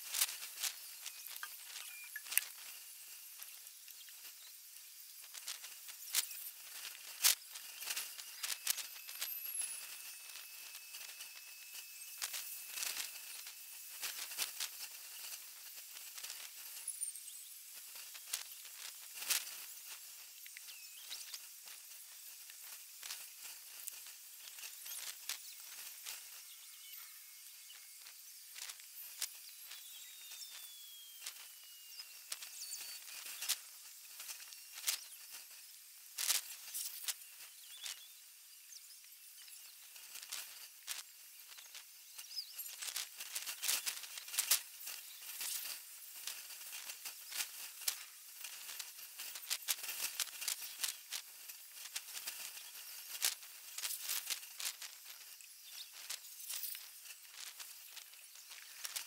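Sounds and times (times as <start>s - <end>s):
sharp clicks and crackles: 0.0s - 35.6s, 39.0s - 59.0s
outdoor background hiss: 0.0s - 59.0s
faint high chirps: 0.3s - 51.1s, 53.9s - 59.0s.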